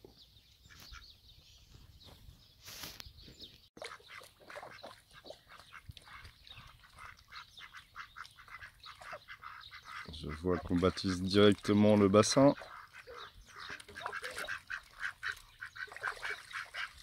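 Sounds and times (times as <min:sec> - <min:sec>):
soft duck calls: 0:03.8 - 0:11.2, 0:12.3 - 0:17.0
duck bills clicking and splashing: 0:03.8 - 0:17.0.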